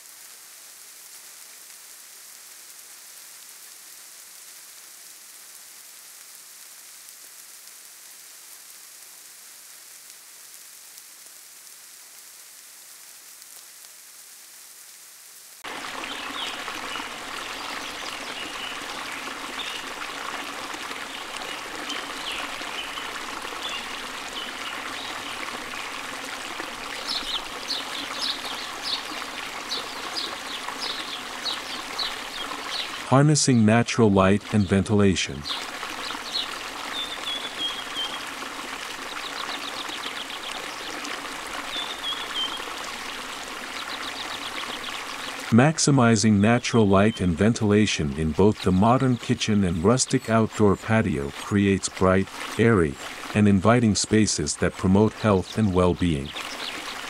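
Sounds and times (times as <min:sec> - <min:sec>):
soft steady hiss: 0:00.0 - 0:57.0
stream running water: 0:15.6 - 0:57.0.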